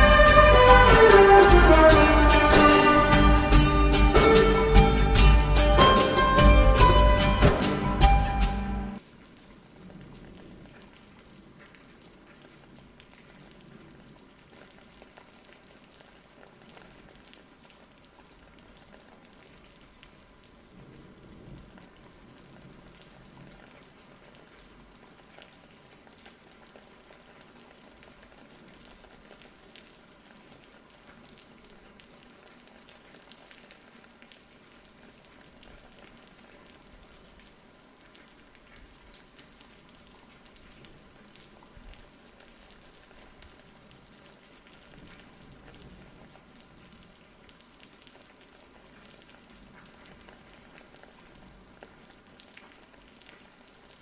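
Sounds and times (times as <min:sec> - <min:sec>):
faint rain-like hiss: 0:00.0 - 0:54.0
soft crackles: 0:09.0 - 0:54.0.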